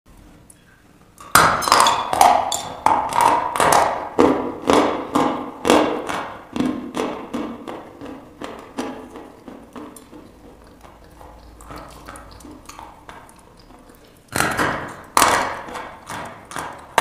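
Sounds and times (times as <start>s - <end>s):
chewing crunches: 7.7s - 17.0s.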